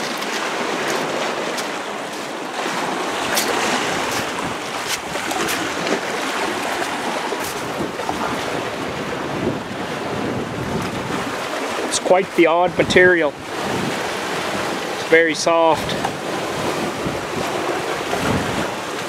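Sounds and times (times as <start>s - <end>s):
small waves washing over rocks: 0.0s - 19.0s
wind buffeting microphone: 2.6s - 11.9s, 12.6s - 15.0s, 15.7s - 19.0s.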